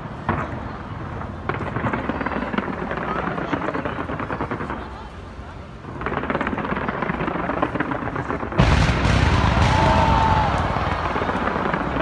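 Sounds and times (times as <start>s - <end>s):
fireworks crackling: 0.0s - 12.0s
deep firework booms: 5.9s - 12.0s.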